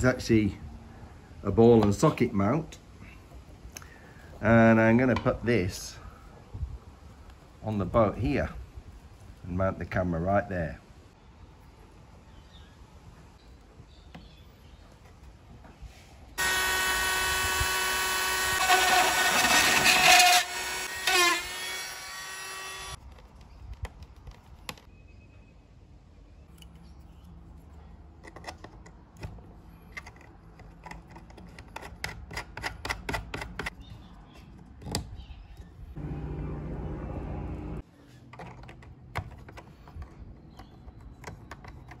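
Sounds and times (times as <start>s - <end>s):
electric screwdriver whining: 16.4s - 23.0s.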